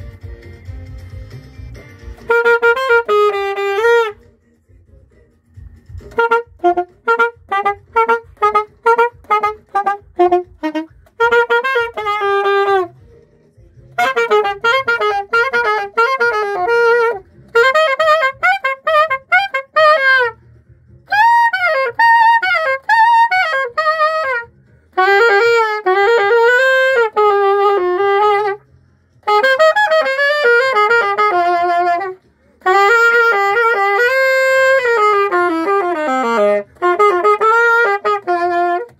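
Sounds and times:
alto saxophone playing: 1.7 - 4.2, 5.9 - 13.2, 13.9 - 20.4, 21.1 - 38.9.

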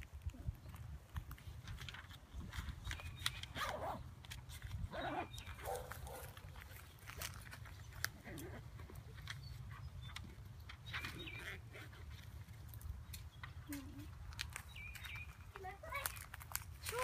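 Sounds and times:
paper and backpack rustling: 0.0 - 17.0
dog barking: 5.0 - 6.4.

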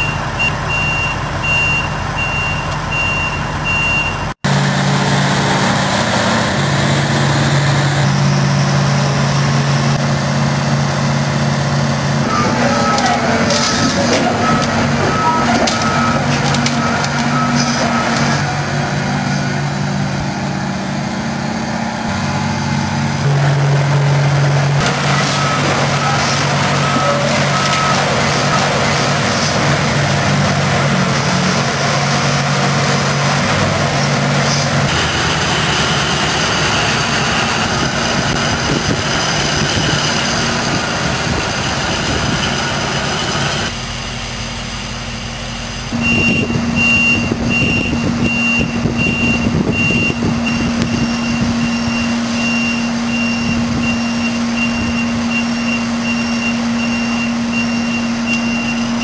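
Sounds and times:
back-up alarm beeping: 0.0 - 4.4, 12.3 - 18.6, 24.8 - 29.8, 45.9 - 59.0
truck engine running: 0.0 - 59.0.

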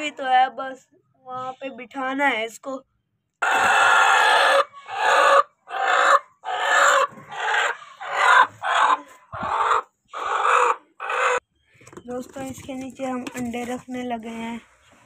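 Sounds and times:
hen squawking: 3.4 - 11.4.

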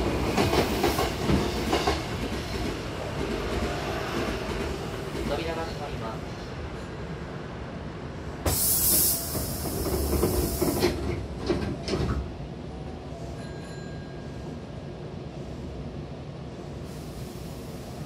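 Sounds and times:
air hiss of train doors: 8.4 - 11.2, 16.6 - 18.0.

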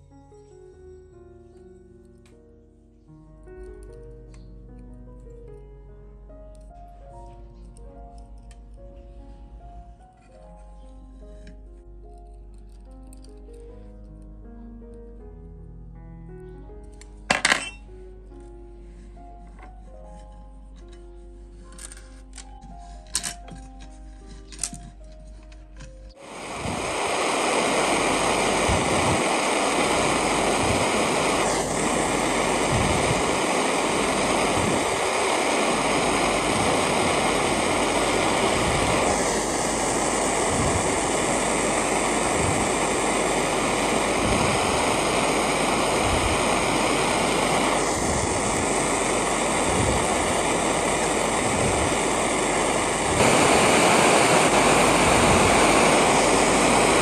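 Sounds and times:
torch flame roaring: 26.2 - 57.0.

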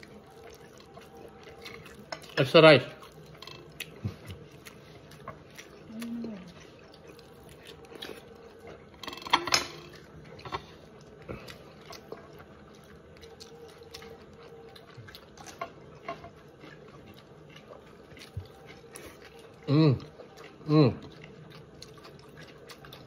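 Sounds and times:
soft mouth sounds: 5.7 - 6.7.

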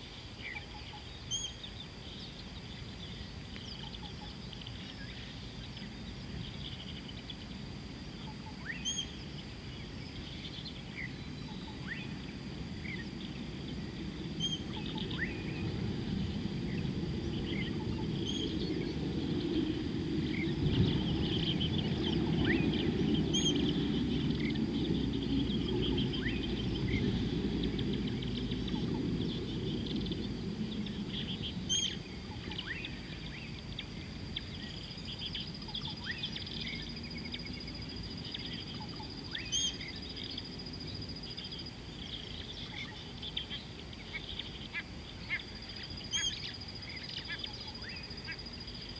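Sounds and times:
birds chirping and whistling: 0.4 - 2.3, 8.2 - 9.2, 14.3 - 16.1, 16.7 - 37.5, 38.2 - 40.4, 42.0 - 48.0.

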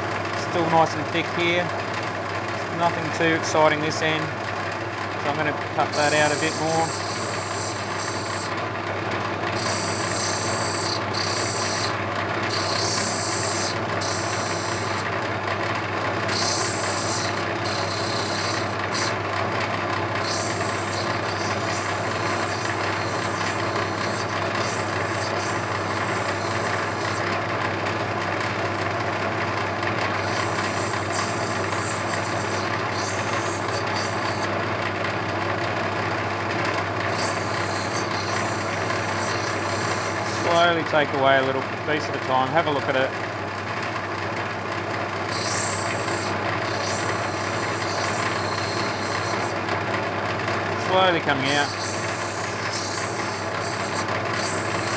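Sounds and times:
grinding wheel motor humming: 0.0 - 54.9
stone grinding hiss: 5.8 - 8.6, 9.5 - 15.1, 16.2 - 19.2, 20.2 - 27.3, 30.2 - 34.6, 37.1 - 40.7, 45.2 - 49.6, 51.2 - 54.9.

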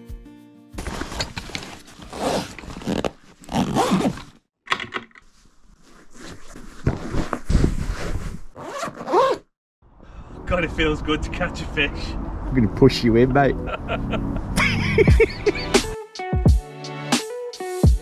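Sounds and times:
fabric rustling: 0.8 - 4.4, 5.2 - 9.4.

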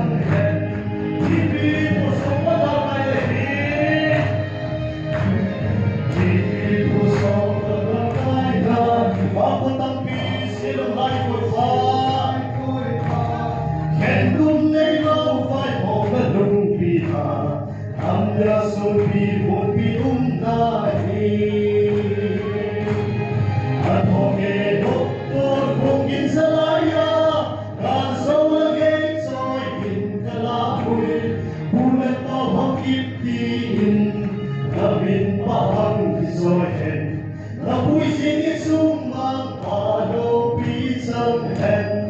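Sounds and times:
mixed choir singing: 6.1 - 14.4, 18.1 - 42.0.

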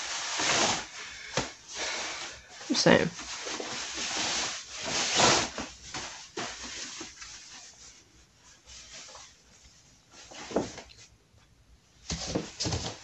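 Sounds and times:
cloth rustling: 0.0 - 11.3.

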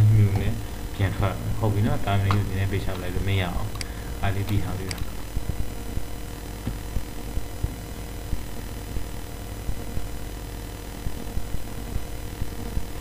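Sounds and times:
steady low hum: 0.0 - 13.0
soft low thumps: 5.2 - 10.1.

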